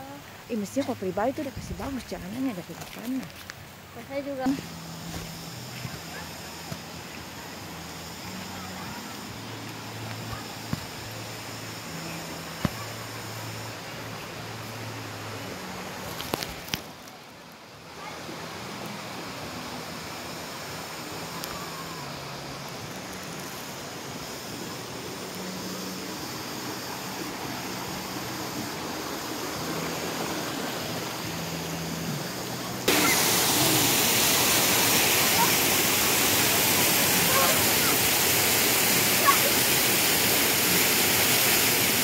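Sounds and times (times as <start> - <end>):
waterfall rushing: 17.8 - 42.0.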